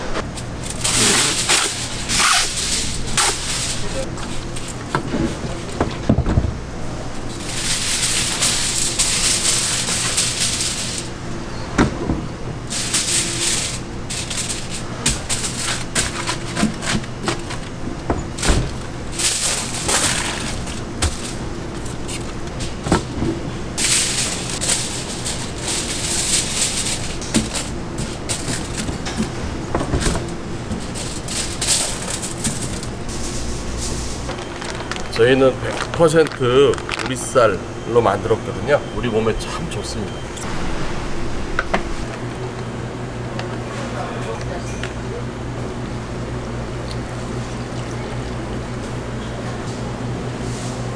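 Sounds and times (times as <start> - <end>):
foil crinkling and rustling: 0.4 - 4.7, 7.3 - 11.1, 12.7 - 17.7, 18.4 - 22.8, 23.8 - 29.3, 30.5 - 37.6.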